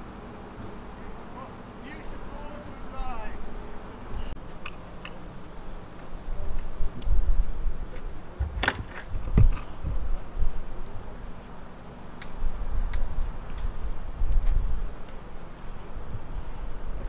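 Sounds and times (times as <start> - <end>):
wind on microphone: 6.3 - 11.0, 12.4 - 15.1, 15.7 - 17.0
door unlatching and opening: 8.4 - 9.1
sharp door clunks: 8.4 - 9.5.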